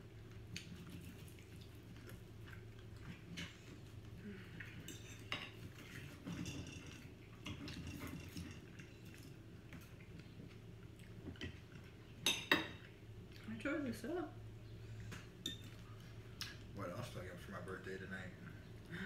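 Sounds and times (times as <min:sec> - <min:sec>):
cutlery scraping on plates: 0:04.8 - 0:08.8.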